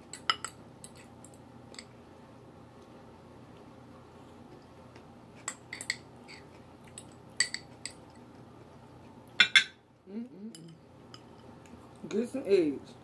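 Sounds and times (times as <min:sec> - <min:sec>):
glassware clattering: 0:09.4 - 0:09.8.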